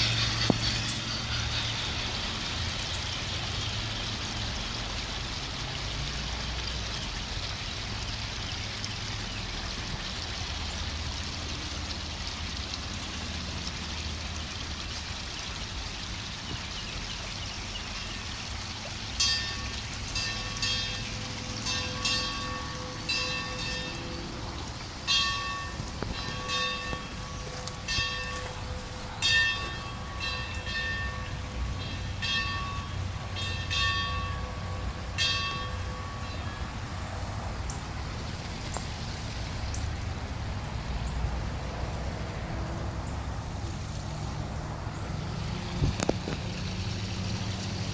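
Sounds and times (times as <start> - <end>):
background hiss: 0.0 - 47.9
bell ringing: 19.2 - 36.7.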